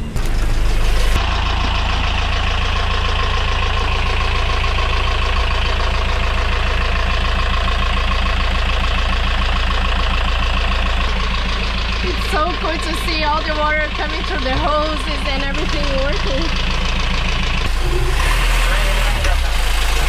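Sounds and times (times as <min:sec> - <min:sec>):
diesel engine idling: 0:00.0 - 0:20.0.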